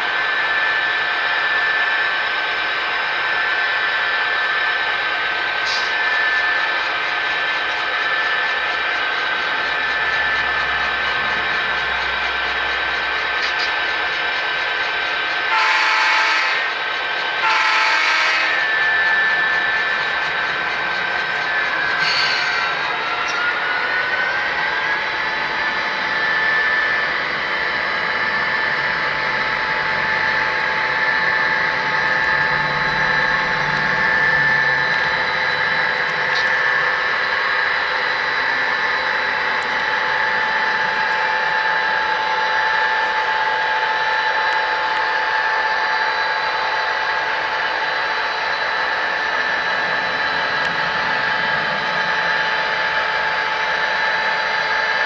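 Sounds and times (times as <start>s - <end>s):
model locomotive whine: 0.0s - 55.0s
wheels rolling on rails: 5.6s - 15.5s.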